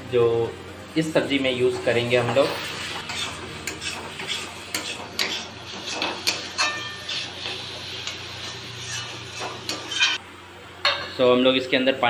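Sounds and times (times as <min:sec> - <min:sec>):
metal spatula scraping a pan: 0:01.8 - 0:10.2.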